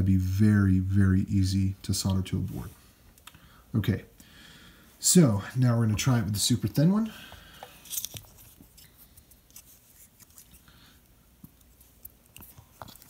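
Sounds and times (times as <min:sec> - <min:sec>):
light rustling of wire: 0:07.2 - 0:13.0.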